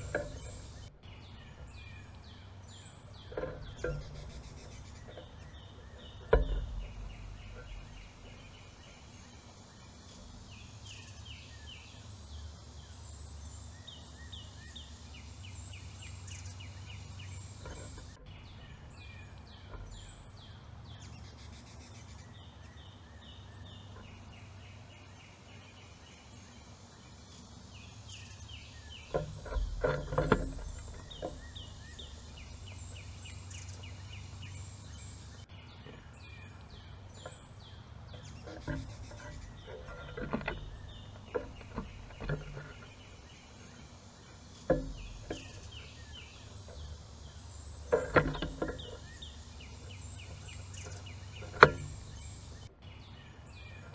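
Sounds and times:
songbirds singing: 0.0 - 53.9
knocks and thumps: 3.1 - 9.0, 29.1 - 32.5, 38.2 - 43.1, 44.6 - 45.8, 47.8 - 49.2.

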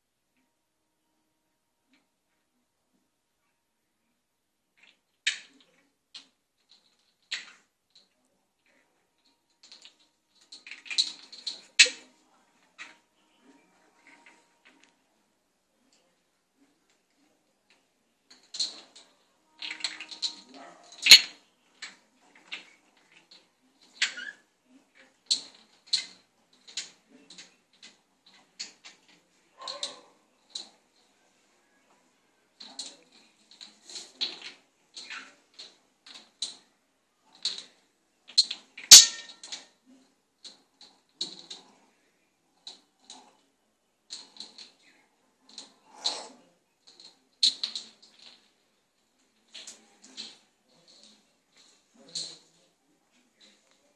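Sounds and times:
bottle cap skittering on tiles: 21.0 - 21.4, 38.3 - 39.7.

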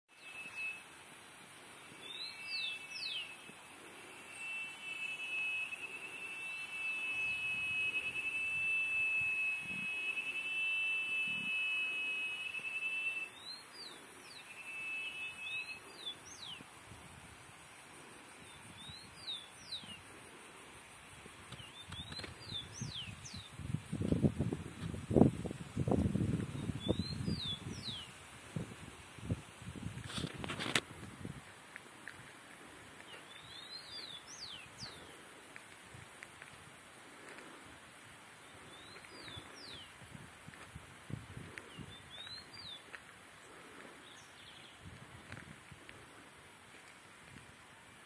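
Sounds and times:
birds whistling calls: 0.1 - 0.9, 1.9 - 16.6, 18.4 - 20.1, 21.5 - 23.6, 26.5 - 28.2, 33.0 - 35.2, 38.6 - 39.9, 41.7 - 42.8
high insect hiss: 0.1 - 48.0
shrill bird trilling: 4.3 - 16.2.

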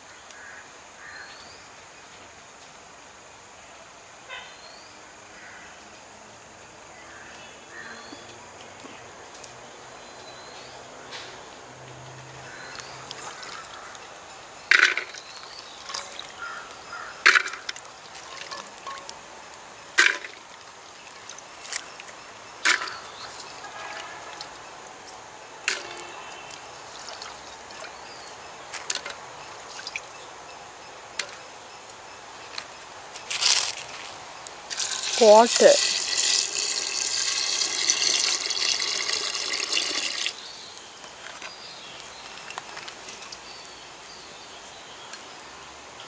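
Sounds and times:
water trickling: 12.5 - 30.4, 34.7 - 41.2
seeds clacking into clay pot: 34.7 - 43.4.

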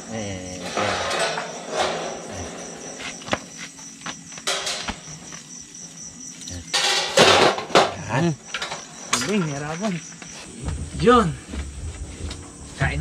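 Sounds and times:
crickets chirping: 0.0 - 13.0
metal grill basket clicks and knocks: 0.7 - 3.2, 4.4 - 5.1, 6.7 - 7.9.

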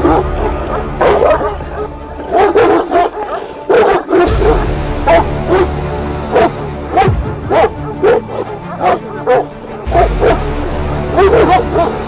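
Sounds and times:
dogs barking deeply: 0.0 - 12.0.

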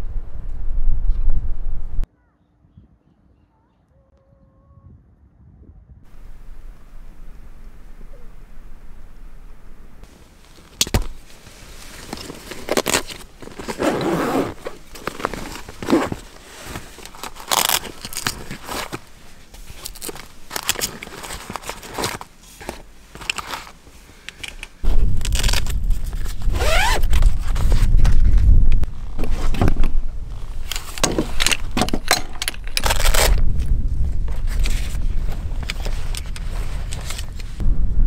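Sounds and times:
nylon pouches rustling: 10.0 - 31.8
zipper pulled open: 12.0 - 19.1, 24.8 - 28.2.

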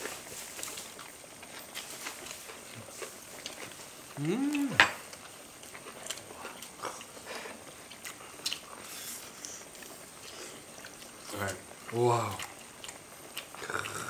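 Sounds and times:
faint chewing: 0.0 - 14.0
vocal sound of enjoyment: 4.2 - 4.9.

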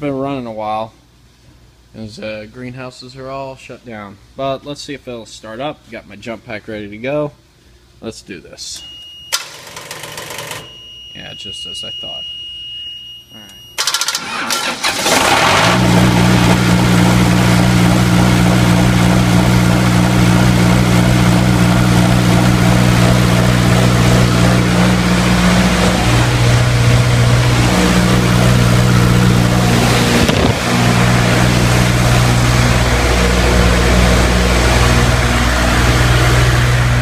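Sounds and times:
diesel generator engine running: 13.8 - 37.0.

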